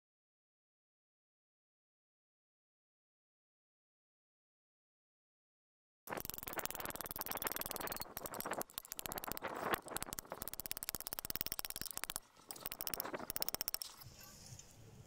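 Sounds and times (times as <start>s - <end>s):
hammer tapping steel rod: 6.2s - 14.0s.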